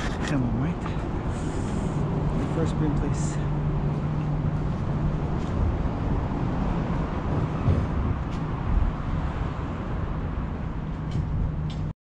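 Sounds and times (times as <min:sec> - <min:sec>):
road traffic rumble overhead: 0:00.0 - 0:11.9.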